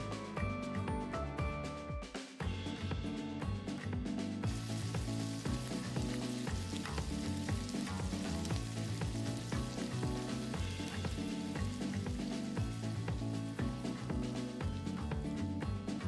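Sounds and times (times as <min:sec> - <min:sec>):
background music: 0:00.0 - 0:16.0
steak sizzling on iron plate: 0:04.5 - 0:15.0.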